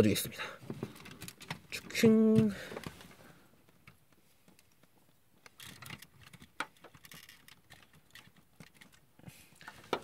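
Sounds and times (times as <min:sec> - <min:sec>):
plastic toy parts clicking: 0:05.4 - 0:09.0.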